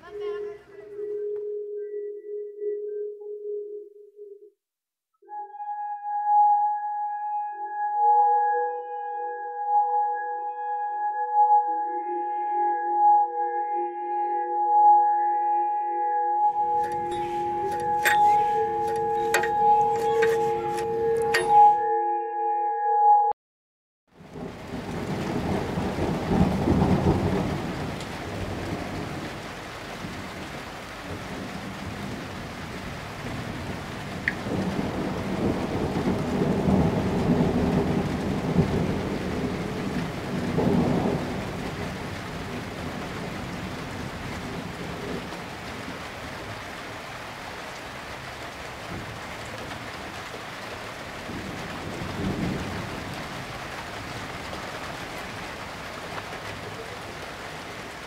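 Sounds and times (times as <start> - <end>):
steady rain: 16.5 - 21.4, 24.1 - 58.0
thunder rumbling: 24.2 - 47.0, 48.0 - 58.0.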